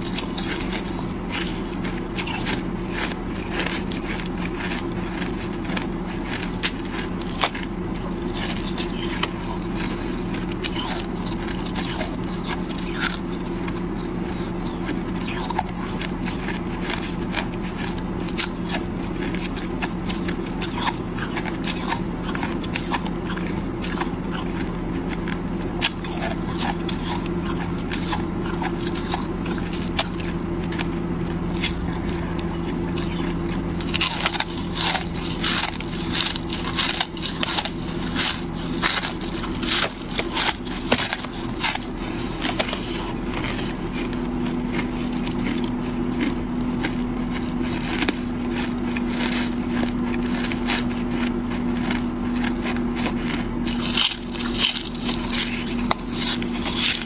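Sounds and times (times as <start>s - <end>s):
ice crunched between teeth: 0.0s - 57.0s
steady low hum: 0.0s - 57.0s.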